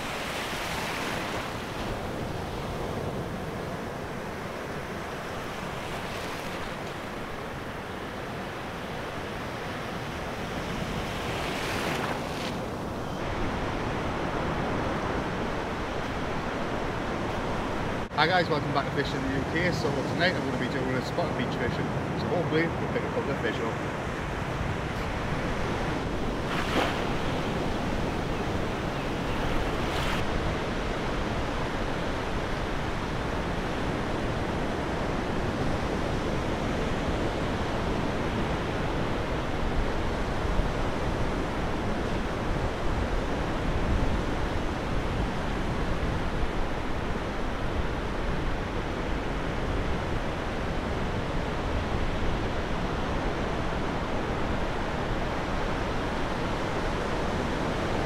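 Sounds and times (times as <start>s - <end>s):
waves breaking on beach: 0.0s - 58.0s
wind on microphone: 23.8s - 58.0s.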